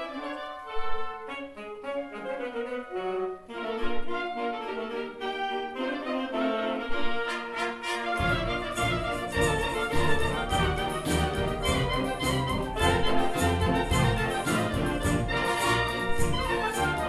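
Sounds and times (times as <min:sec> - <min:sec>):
clarinets and saxophones melody: 0:00.0 - 0:17.0
wind band playing: 0:00.0 - 0:17.0.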